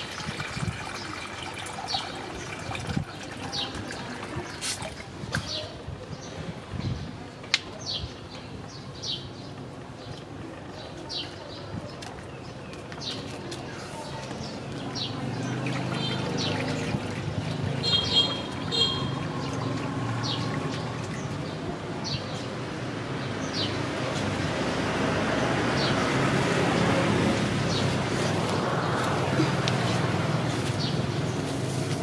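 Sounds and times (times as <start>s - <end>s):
tap water splashing in basin: 0.0s - 5.5s, 15.5s - 21.4s.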